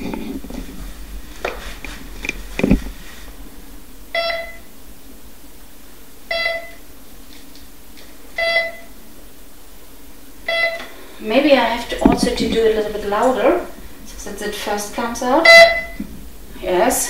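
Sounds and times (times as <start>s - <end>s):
knocks and thump: 0.0s - 3.4s, 11.9s - 13.2s, 15.8s - 16.3s
metal detector beeping: 4.1s - 4.7s, 6.3s - 6.8s, 8.4s - 8.9s, 10.4s - 10.9s, 15.4s - 16.0s.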